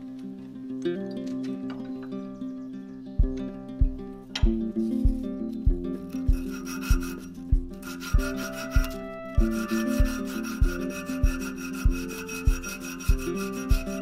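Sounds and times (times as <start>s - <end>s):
background music with beat: 3.2s - 14.0s
abrasive cloth sanding metal: 5.9s - 14.0s.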